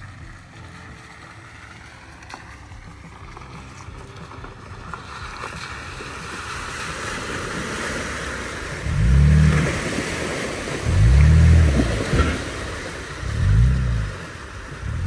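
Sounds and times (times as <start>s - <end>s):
pickup truck driving on dirt: 0.0s - 15.0s
engine revving: 8.7s - 15.0s.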